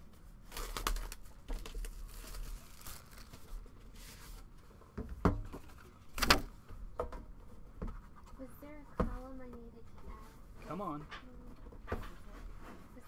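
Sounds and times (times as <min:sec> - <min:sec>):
plastic shrink wrap tearing: 0:00.4 - 0:03.6.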